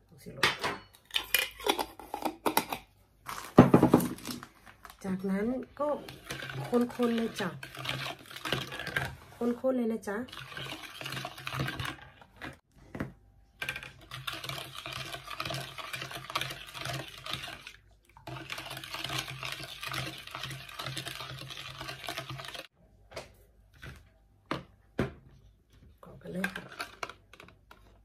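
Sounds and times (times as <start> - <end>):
metal spoon stirring in plastic bowl: 4.7 - 12.6, 13.5 - 22.7, 25.8 - 28.0.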